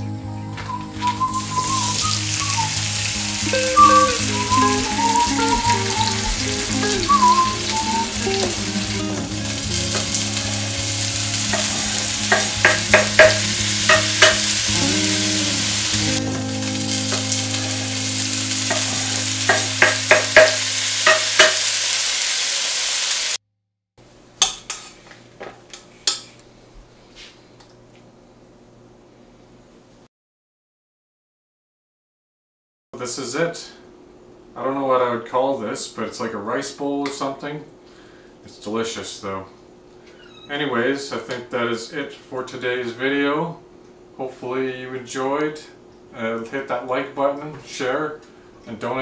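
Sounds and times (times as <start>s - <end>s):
vegetables sizzling in a frying pan: 1.0s - 23.4s.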